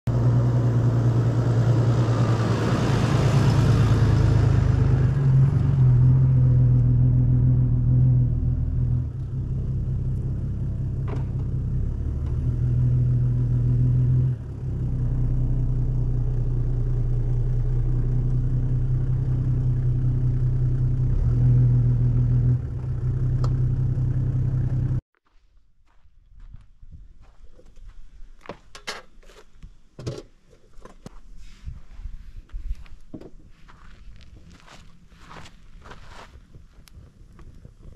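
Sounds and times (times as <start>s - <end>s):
van engine humming: 0.1s - 25.0s.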